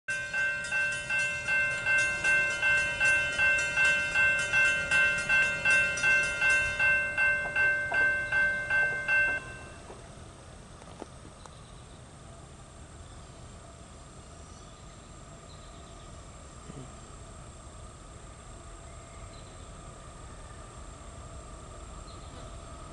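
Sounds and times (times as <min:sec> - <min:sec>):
railroad crossing bell ringing: 0:00.1 - 0:10.0.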